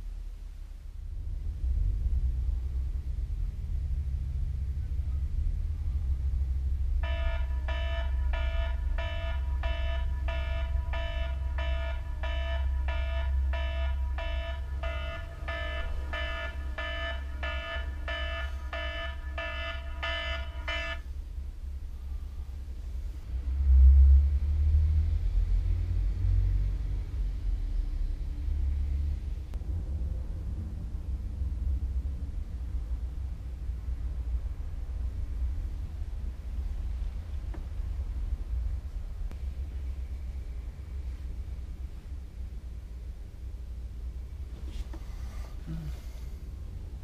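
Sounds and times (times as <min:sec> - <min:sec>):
low steady rumble: 0:00.0 - 0:47.0
alarm beeping: 0:07.0 - 0:21.1.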